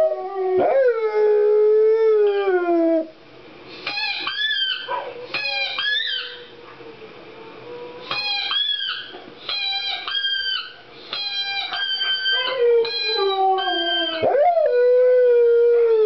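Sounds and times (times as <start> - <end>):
wavering high-pitched dog calls: 3.8 - 6.5, 8.0 - 14.4
dog howling: 3.9 - 6.5, 7.4 - 16.0.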